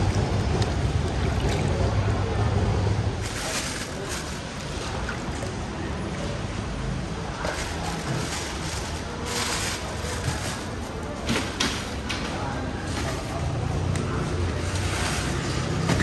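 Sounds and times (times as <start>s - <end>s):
water splashing and dripping: 0.0s - 6.0s
plastic bag rustling: 3.1s - 5.6s, 7.4s - 11.2s.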